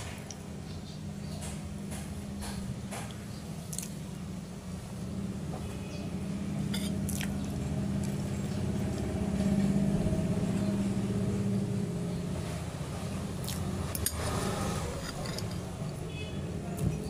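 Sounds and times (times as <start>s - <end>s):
low engine rumble: 0.0s - 17.0s.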